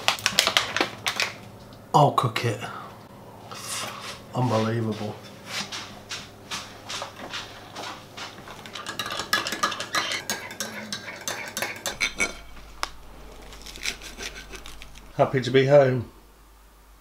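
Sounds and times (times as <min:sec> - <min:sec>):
plates and cutlery clinking: 0:07.3 - 0:15.1.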